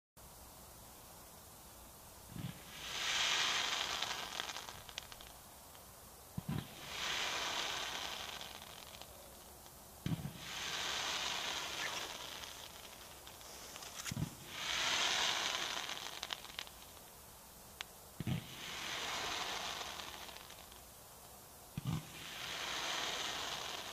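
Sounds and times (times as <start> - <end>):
firework spark hiss: 1.9 - 23.9
firework sharp cracks: 2.3 - 20.9, 21.7 - 23.9
firework low thumps: 6.4 - 9.1, 10.0 - 17.1.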